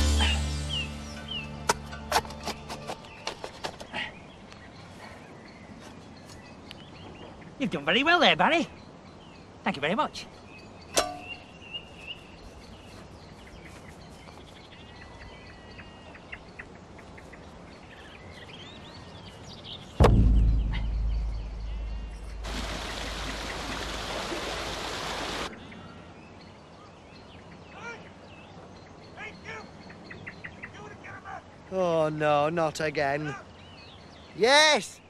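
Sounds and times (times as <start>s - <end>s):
faint birdsong: 0.0s - 35.0s
heavy plastic thud: 20.0s - 22.4s.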